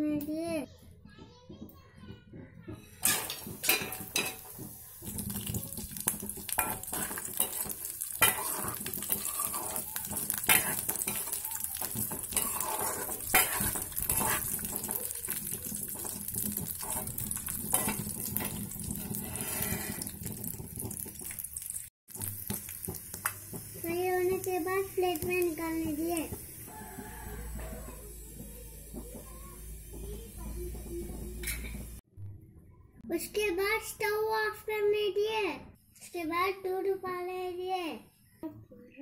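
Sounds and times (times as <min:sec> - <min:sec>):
ladle scraping pan: 0:03.0 - 0:21.3
nuts sizzling in ghee: 0:03.1 - 0:32.0.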